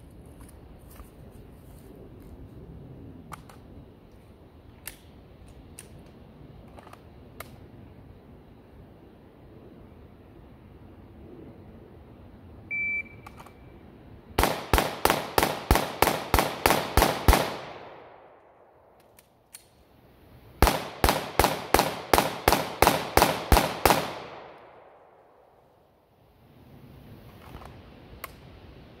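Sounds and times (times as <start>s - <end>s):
shot timer beep: 12.7s - 13.2s
pistol shots: 14.4s - 18.6s, 20.6s - 25.4s.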